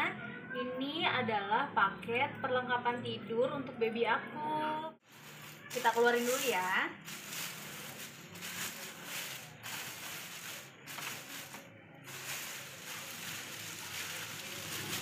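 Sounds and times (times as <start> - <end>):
plastic packaging crinkling: 5.0 - 15.0.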